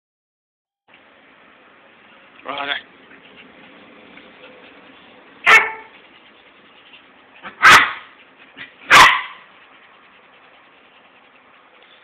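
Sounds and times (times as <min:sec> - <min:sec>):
dogs barking: 0:04.4 - 0:09.8.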